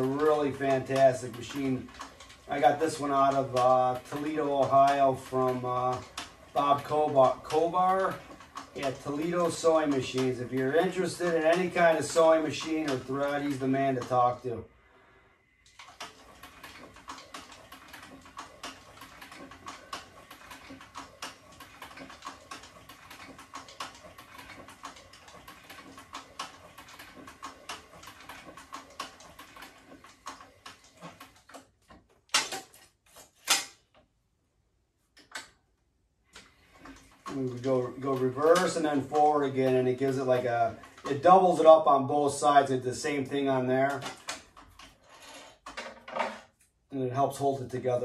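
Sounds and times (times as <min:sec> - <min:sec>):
sewing machine needle ticks: 0:00.0 - 0:14.2, 0:15.6 - 0:31.7
sewing machine motor hum: 0:00.0 - 0:14.6, 0:15.6 - 0:32.8, 0:36.3 - 0:45.8.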